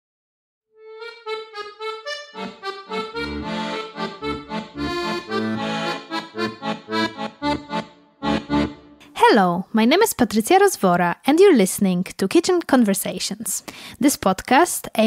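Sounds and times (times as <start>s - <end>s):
instrumental melody: 0.7s - 9.2s
bass notes and chords: 0.9s - 9.1s.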